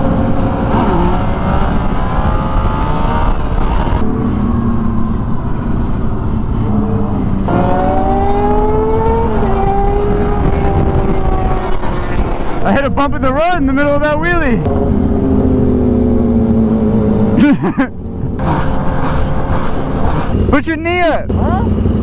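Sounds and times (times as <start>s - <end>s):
motorcycle engines revving hard: 0.0s - 5.2s, 6.5s - 22.0s
wind rush: 0.0s - 17.4s.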